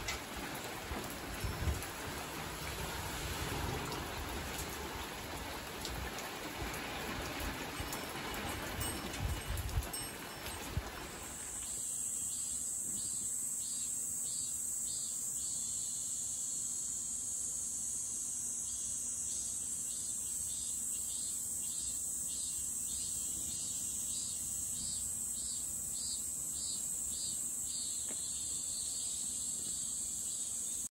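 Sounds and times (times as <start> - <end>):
rain: 0.0 - 11.8
insects high-pitched drone: 7.8 - 30.9
pulsing insect call: 11.4 - 30.9.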